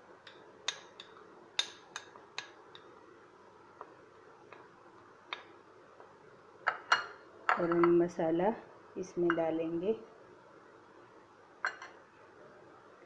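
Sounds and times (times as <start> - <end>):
metal spoon clinking glass bowl: 11.6 - 12.0.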